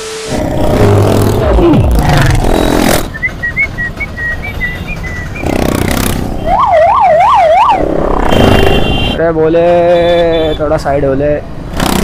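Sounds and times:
siren sweeping up and down: 6.4 - 8.7.

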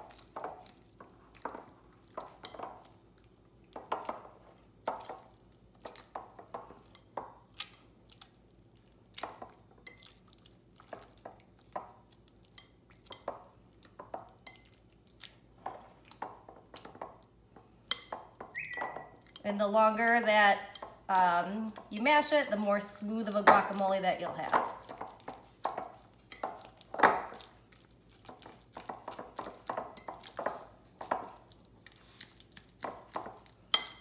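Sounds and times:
fork mashing in glass bowl: 23.2 - 34.0.

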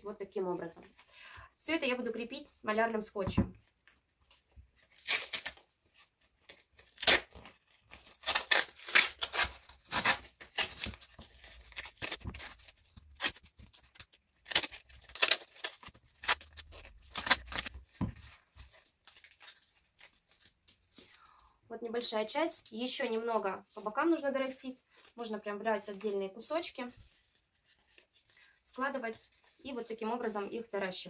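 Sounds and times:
masking tape ripping off roll: 4.8 - 5.7, 6.4 - 18.0.

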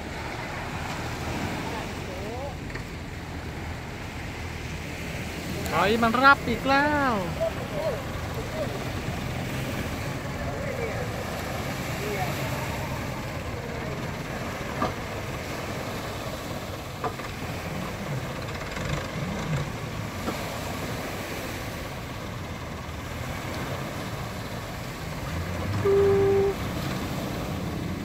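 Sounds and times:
speedboat motor: 0.0 - 28.0
waves washing up ramp: 0.0 - 28.0
tractor engine running: 7.2 - 28.0
short horn beep: 25.8 - 26.6.

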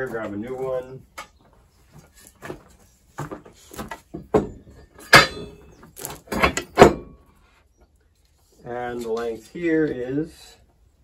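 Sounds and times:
metal rails clanking and scraping: 3.7 - 7.2.

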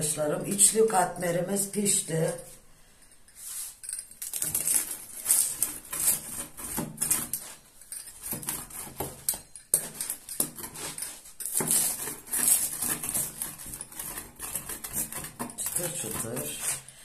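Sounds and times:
pizza cutter crunching crust: 4.3 - 7.6, 9.9 - 16.9.

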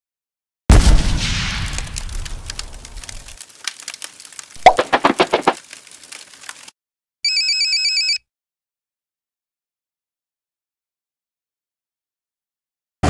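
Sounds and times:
fire crackling and popping: 0.7 - 6.7.

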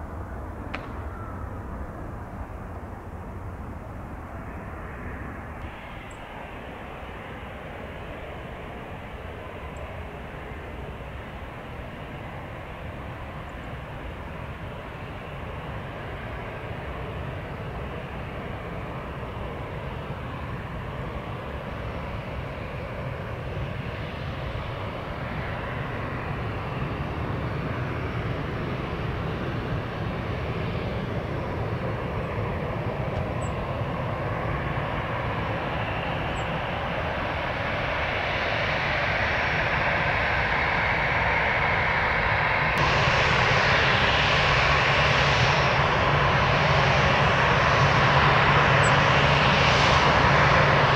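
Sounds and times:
jet engines droning: 0.0 - 50.9.

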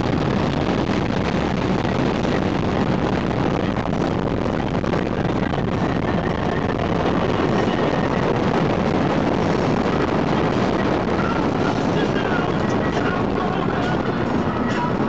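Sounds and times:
motorboat engine: 0.0 - 15.0
wind on the microphone: 0.0 - 15.0.

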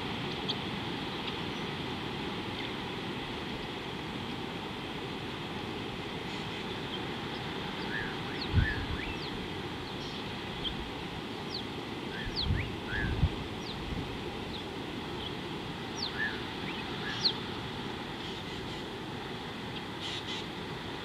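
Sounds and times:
birds chirping and whistling: 6.9 - 10.8, 11.5 - 13.8, 16.0 - 17.4.

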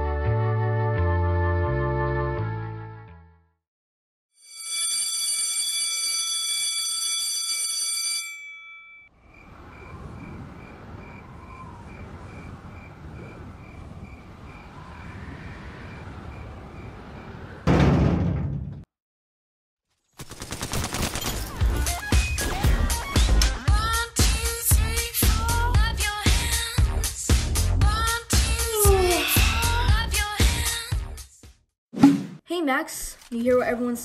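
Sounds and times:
outdoor ambience: 9.1 - 18.9.

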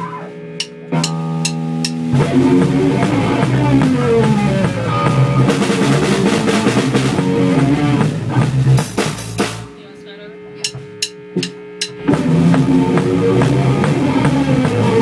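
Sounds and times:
electric guitar chord ringing: 0.0 - 5.6
rock band playing: 0.0 - 15.0
cymbals crashing: 0.6 - 2.1.

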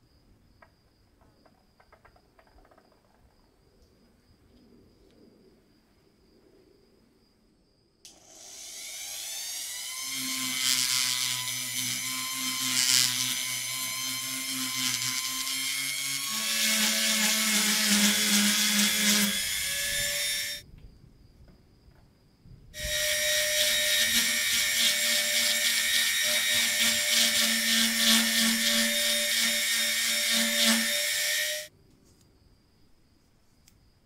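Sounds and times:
rotary tool sanding metal: 8.1 - 20.6, 22.8 - 31.7.

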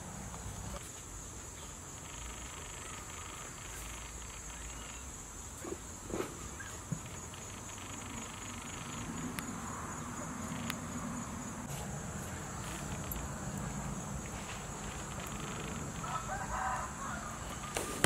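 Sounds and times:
high-pitched insect trill: 0.0 - 17.8.

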